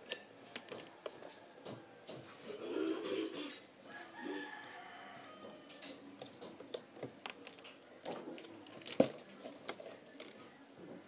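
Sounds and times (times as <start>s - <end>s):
rooster crowing: 3.8s - 6.0s.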